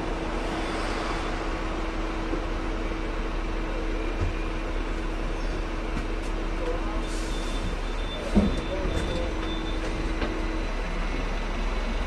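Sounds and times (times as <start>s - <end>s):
tram hum and rumble: 0.0s - 12.0s.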